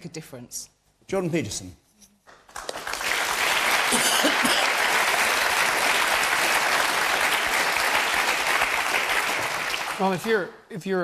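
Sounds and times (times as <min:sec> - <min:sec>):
audience applauding: 0:02.3 - 0:10.4.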